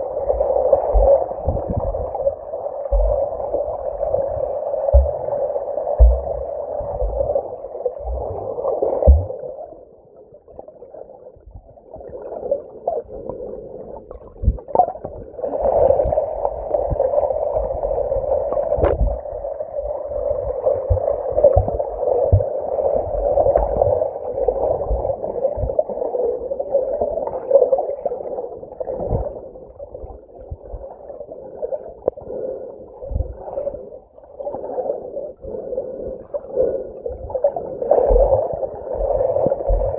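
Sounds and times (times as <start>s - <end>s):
muffled underwater rushing: 0.0s - 39.9s
low underwater thumps and knocks: 18.8s - 19.2s, 20.9s - 22.5s, 39.0s - 39.9s.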